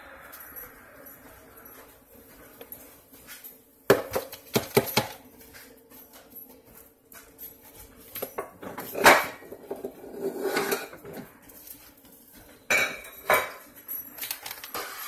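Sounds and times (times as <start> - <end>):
containers clattering on stone countertop: 8.2 - 11.3.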